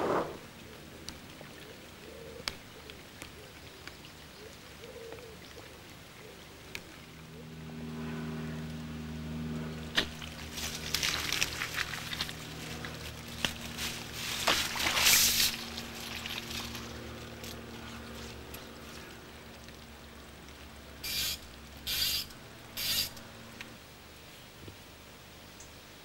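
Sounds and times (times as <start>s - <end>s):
steady low hum: 6.3s - 26.0s
raindrops crackling on plastic bag: 10.0s - 21.7s.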